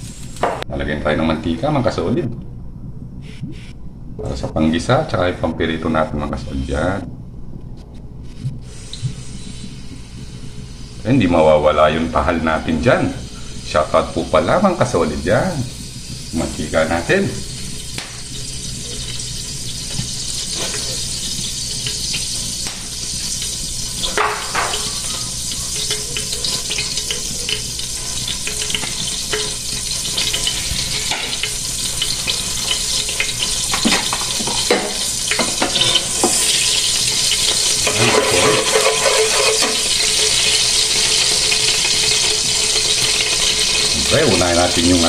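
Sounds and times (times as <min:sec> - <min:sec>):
oil sizzling in a pan: 0:08.6 - 0:45.0
spatula scraping a pan: 0:24.0 - 0:41.4.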